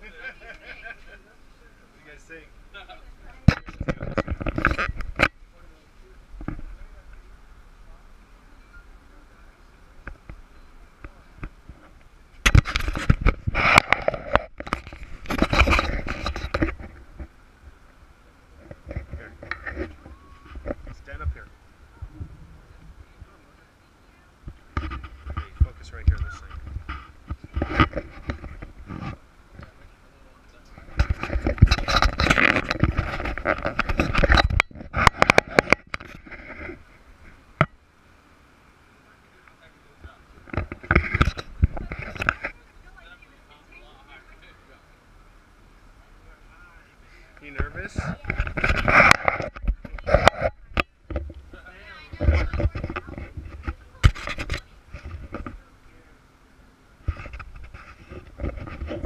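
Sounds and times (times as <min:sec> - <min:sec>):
camera scraping and bumping: 0:03.2 - 0:05.8, 0:06.4 - 0:07.2, 0:10.0 - 0:23.6, 0:24.4 - 0:37.8, 0:39.6 - 0:43.1, 0:47.4 - 0:56.1, 0:57.0 - 0:59.0
camera handling noise: 0:11.4 - 0:17.2.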